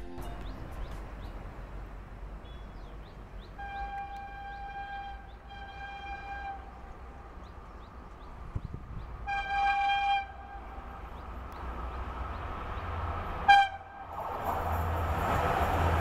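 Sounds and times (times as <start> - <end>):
distant electric locomotive horn: 3.5 - 7.0, 9.2 - 11.0, 13.4 - 14.2.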